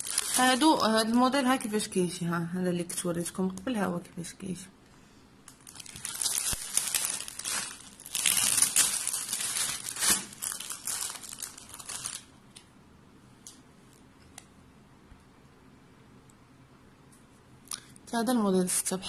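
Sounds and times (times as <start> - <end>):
plastic bag crinkling: 0.0 - 1.0, 5.5 - 12.3.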